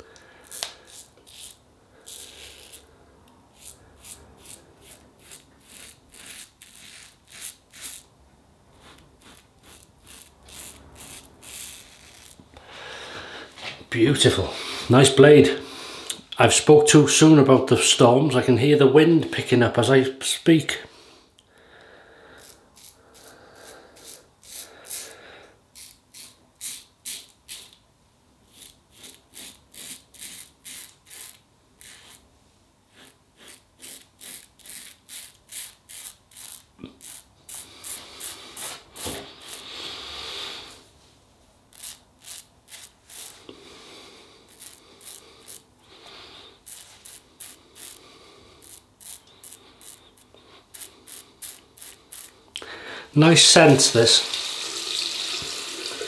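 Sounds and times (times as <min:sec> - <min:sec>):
razor rasping on stubble: 0:00.4 - 0:02.9, 0:03.5 - 0:08.1, 0:08.8 - 0:12.4, 0:22.4 - 0:25.1, 0:25.7 - 0:27.8, 0:28.5 - 0:32.2, 0:32.9 - 0:39.8, 0:41.7 - 0:43.5, 0:44.4 - 0:52.4.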